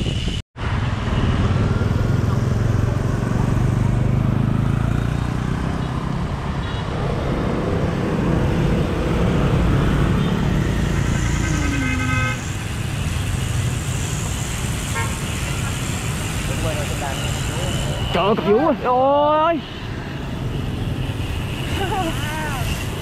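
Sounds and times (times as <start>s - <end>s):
scooters and motorbikes passing: 0.6s - 23.0s
horn toot: 10.1s - 12.8s, 14.8s - 15.7s.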